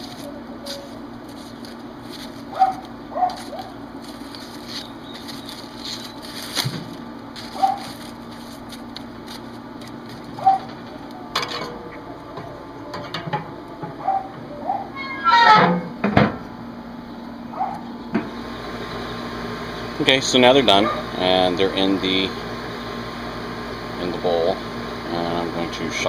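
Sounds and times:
corn husks crackling and rustling: 0:00.0 - 0:11.5.

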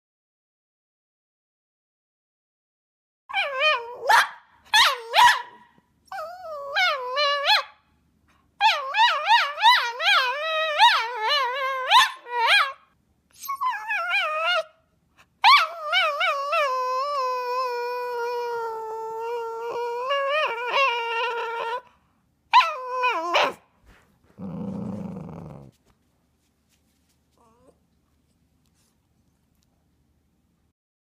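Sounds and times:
dog whining and moaning: 0:03.3 - 0:04.2, 0:06.1 - 0:07.7, 0:08.6 - 0:14.8, 0:15.4 - 0:25.8, 0:27.3 - 0:27.9.

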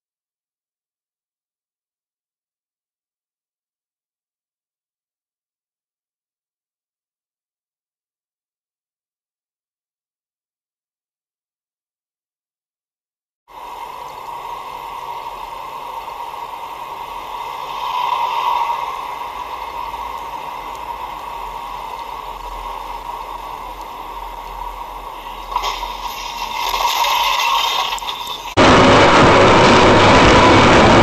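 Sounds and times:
car road and engine noise: 0:13.5 - 0:31.0
loud engine: 0:13.5 - 0:31.0.

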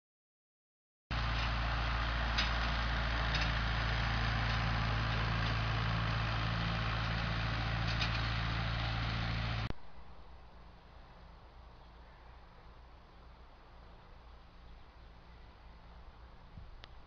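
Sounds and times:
tractor engine running: 0:01.1 - 0:09.7.

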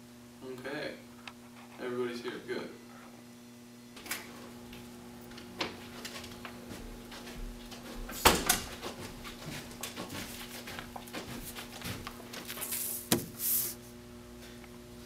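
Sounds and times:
faint steady hum: 0:00.0 - 0:15.0
objects being handled: 0:10.7 - 0:13.8.

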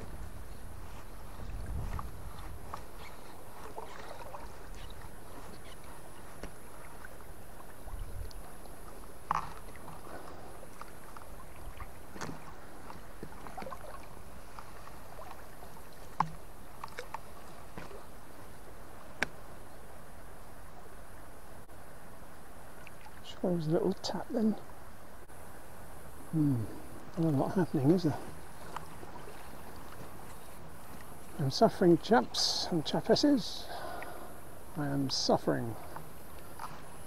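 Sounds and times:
river water flowing: 0:00.0 - 0:37.0.

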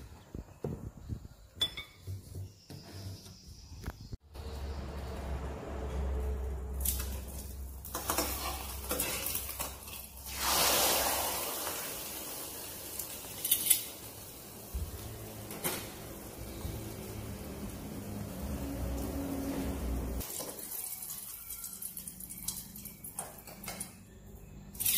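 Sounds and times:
food sizzling: 0:06.9 - 0:22.4
metal tongs clinking on wok: 0:13.2 - 0:14.1.

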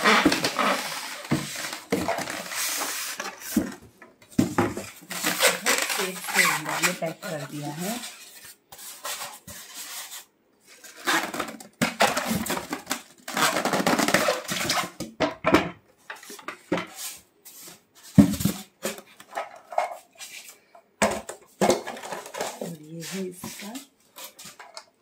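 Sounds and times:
rubbing and rustling: 0:00.0 - 0:15.0, 0:21.4 - 0:24.8.

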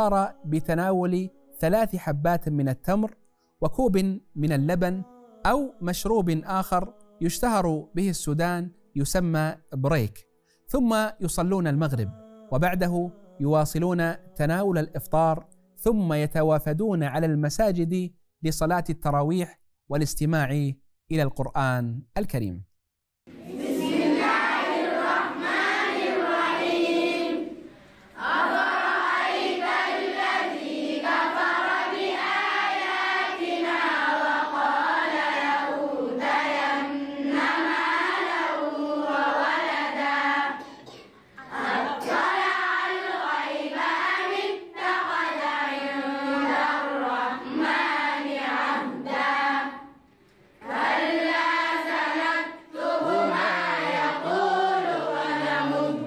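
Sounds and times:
girls chanting in unison: 0:23.3 - 0:49.9, 0:50.6 - 0:56.0.

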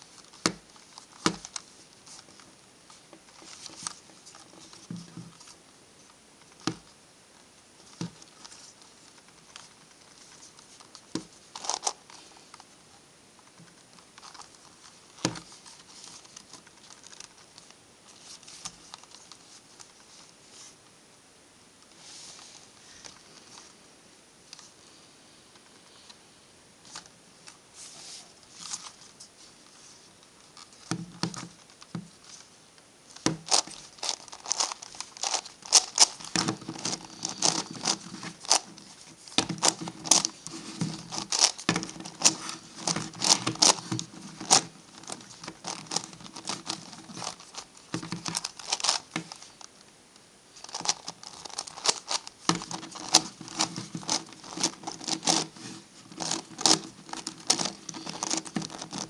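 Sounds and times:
plastic puzzle clicking and rattling: 0:07.8 - 0:12.6, 0:13.4 - 0:17.8, 0:33.1 - 0:49.6, 0:50.6 - 0:59.0.

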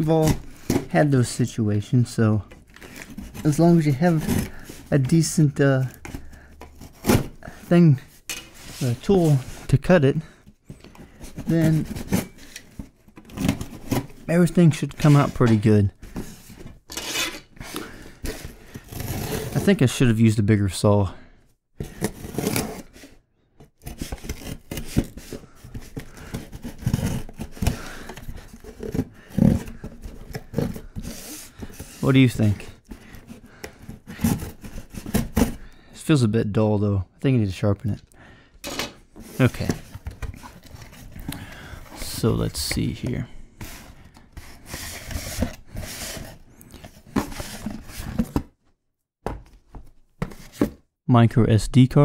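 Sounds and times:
cardboard packaging rustling: 0:02.3 - 0:07.6, 0:23.8 - 0:35.7, 0:39.2 - 0:48.6
hand saw rasping through cardboard: 0:23.8 - 0:32.0.

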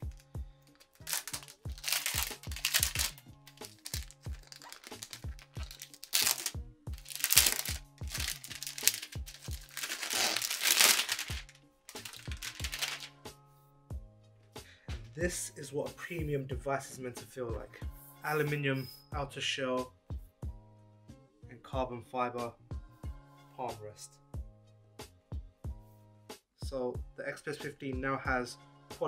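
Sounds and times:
plastic sleeve crinkling: 0:00.0 - 0:13.1
background music with steady beat: 0:00.0 - 0:29.0.

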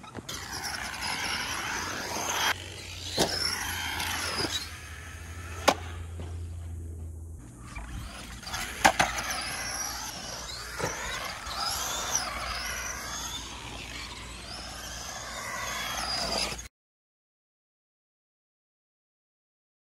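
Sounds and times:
electric motor and gearing whine: 0:00.0 - 0:16.7
tyre noise on concrete: 0:00.0 - 0:16.7.

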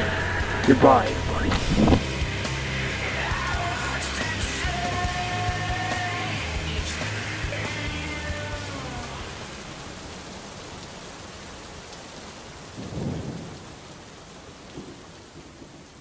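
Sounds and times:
low rumble of thunder: 0:00.0 - 0:02.2, 0:12.7 - 0:14.0, 0:14.6 - 0:16.0
rock music: 0:00.0 - 0:09.6
steady rain: 0:00.0 - 0:16.0.

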